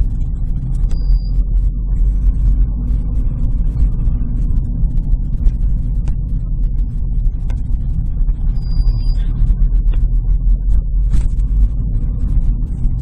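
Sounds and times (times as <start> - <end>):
road and engine rumble: 0.0 - 13.0
high-pitched brake squeal: 8.6 - 9.3.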